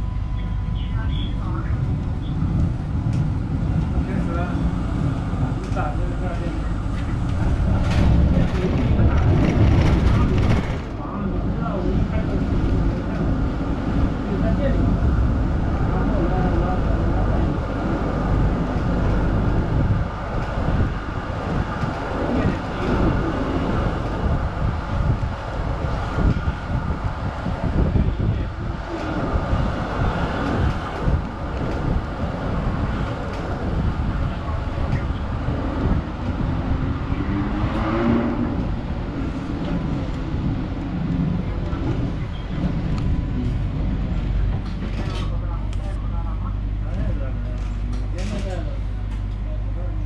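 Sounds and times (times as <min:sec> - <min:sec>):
street noise: 0:00.0 - 0:50.0
tram wheels rumbling on rails: 0:00.0 - 0:50.0.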